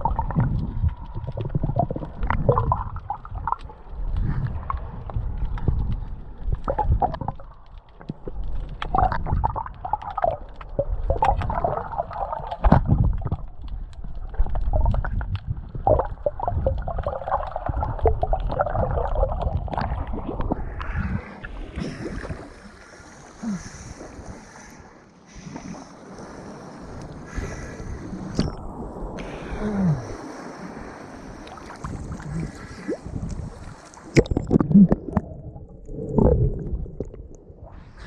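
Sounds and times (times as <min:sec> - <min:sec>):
muffled underwater gurgling: 0:00.0 - 0:03.6.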